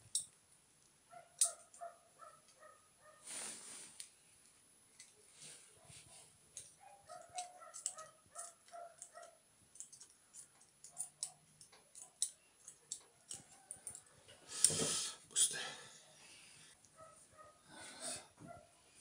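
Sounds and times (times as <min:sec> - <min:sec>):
scissors snipping on metal: 0:01.4 - 0:01.8, 0:06.6 - 0:14.0.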